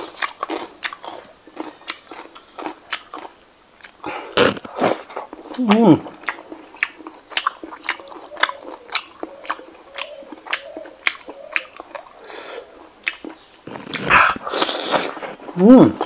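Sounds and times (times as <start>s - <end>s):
person chewing with mouth-smacking: 0.0s - 16.0s.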